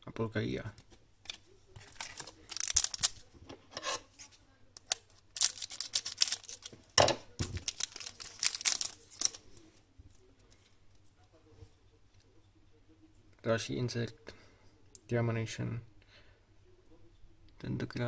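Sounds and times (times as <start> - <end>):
card stock rustling: 1.3 - 3.3, 5.4 - 6.7, 7.4 - 9.6
wrapper crinkling: 1.8 - 3.3, 4.9 - 6.8, 7.4 - 9.6.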